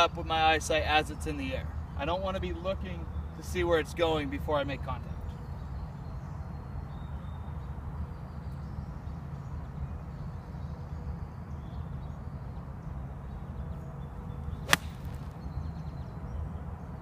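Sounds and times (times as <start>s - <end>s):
golf club striking ball: 14.6s - 15.4s.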